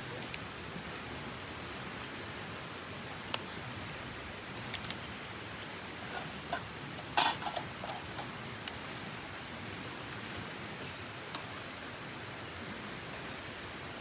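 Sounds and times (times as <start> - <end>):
river water rushing: 0.0 - 14.0
faint clicks: 4.7 - 5.1
metal pot clanking: 6.1 - 8.3.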